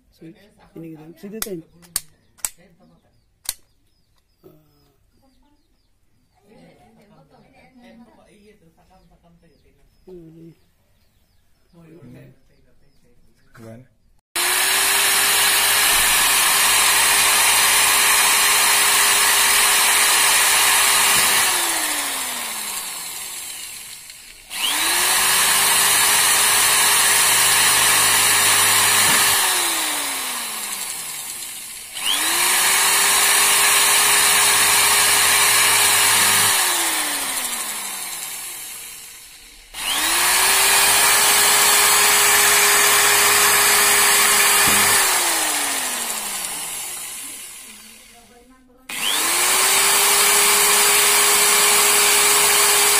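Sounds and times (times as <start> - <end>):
drill motor spinning down: 14.4 - 48.3, 48.9 - 52.9
electric drill drilling plastic: 14.4 - 52.9.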